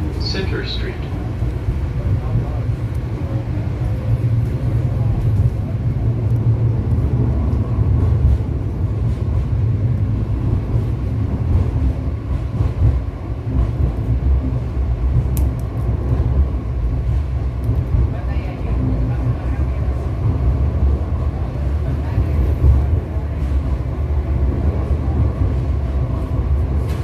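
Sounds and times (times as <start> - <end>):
light rail car rumbling: 0.0 - 27.0.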